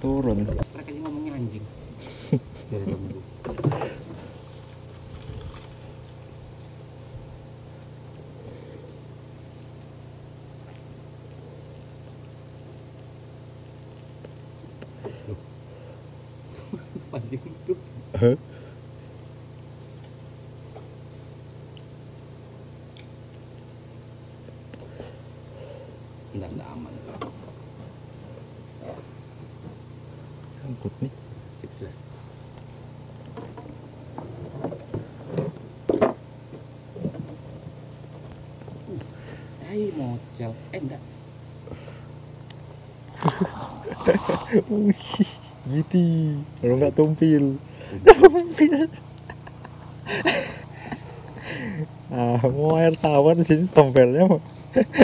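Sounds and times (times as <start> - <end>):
insects buzzing: 0.0 - 55.0
faint knocks: 3.4 - 4.4.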